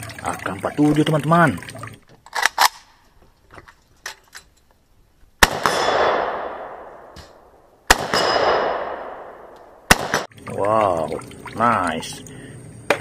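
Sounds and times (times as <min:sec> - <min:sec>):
rifle shots echoing: 0:05.4 - 0:10.3.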